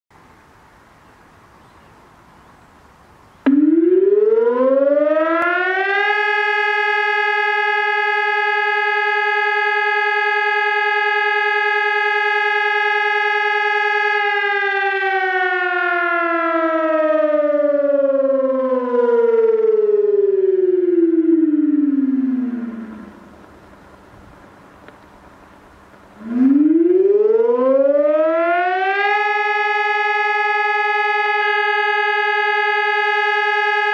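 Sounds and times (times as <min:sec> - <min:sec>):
electronic siren: 0:03.4 - 0:23.4, 0:26.2 - 0:33.9.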